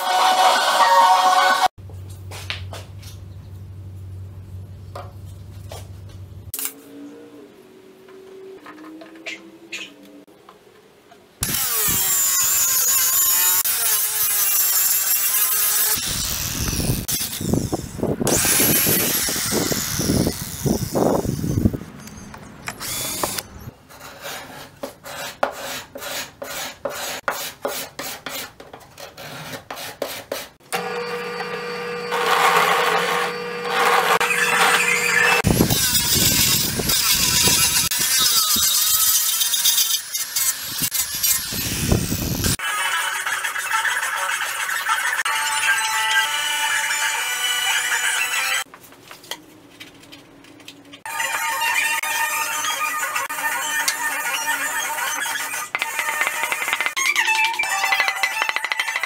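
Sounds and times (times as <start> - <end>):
cordless drill boring wood: 18.3 - 21.0, 22.8 - 23.4, 30.8 - 42.6
drill press motor running: 30.7 - 35.4
loud power tool running: 30.7 - 35.5
wooden sticks clacking: 55.7 - 59.0.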